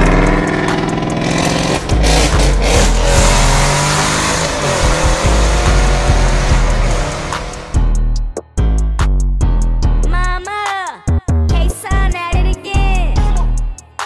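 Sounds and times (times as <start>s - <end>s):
car engine revving: 0.0s - 7.9s.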